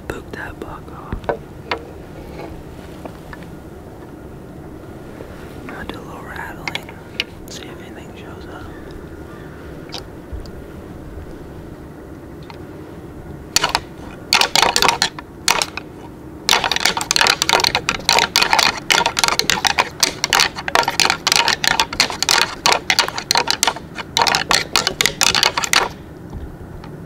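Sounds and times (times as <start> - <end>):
antlers rattling together: 13.6 - 15.9, 16.5 - 26.0.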